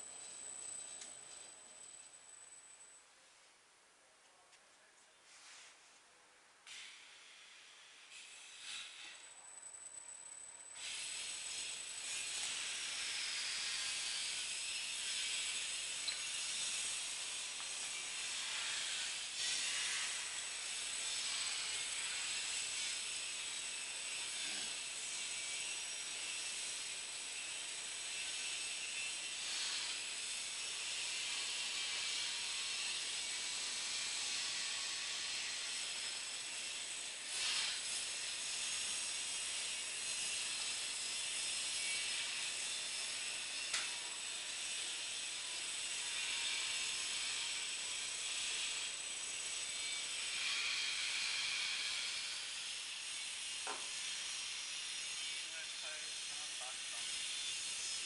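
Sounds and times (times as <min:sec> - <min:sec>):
machine hissing and whining: 0:06.7 - 0:09.4, 0:10.6 - 0:58.0.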